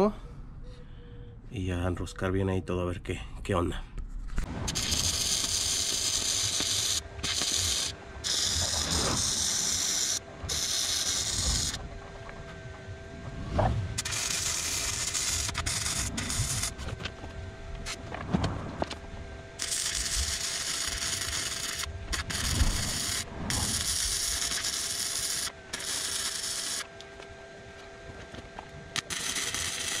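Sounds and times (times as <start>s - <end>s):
welding arc crackling and hissing: 4.4s - 11.8s, 14.0s - 18.1s, 19.6s - 27.0s, 28.9s - 30.0s.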